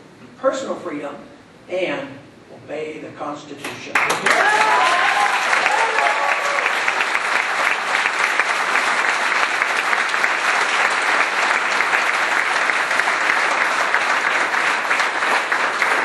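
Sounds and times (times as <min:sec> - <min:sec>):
audience applauding: 0:03.9 - 0:16.0.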